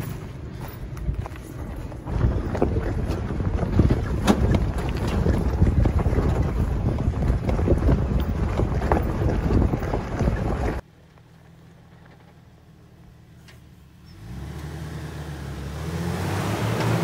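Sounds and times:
wind buffeting microphone: 0.0 - 10.8.

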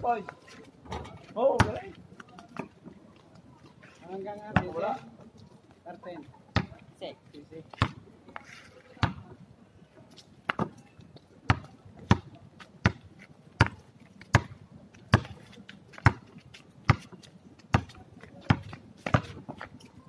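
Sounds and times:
basketball bouncing on concrete: 1.5 - 1.9, 4.5 - 4.8, 6.5 - 6.8, 7.7 - 8.0, 9.0 - 9.3, 11.5 - 16.3, 16.9 - 19.6.

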